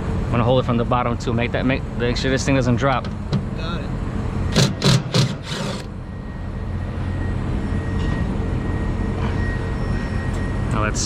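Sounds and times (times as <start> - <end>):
heavy metal part scraping: 4.5 - 5.9.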